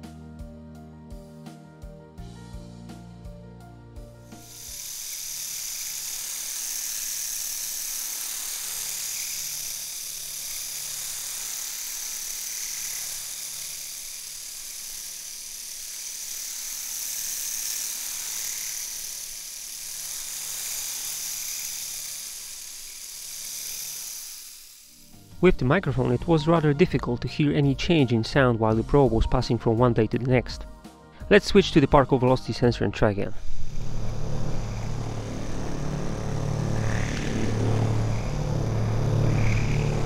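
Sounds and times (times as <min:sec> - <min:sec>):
electric shaver buzzing: 0:04.0 - 0:26.2, 0:33.3 - 0:40.0.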